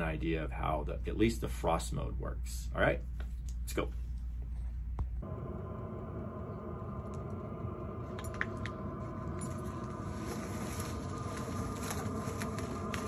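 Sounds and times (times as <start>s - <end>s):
diesel heater humming: 5.2s - 13.0s.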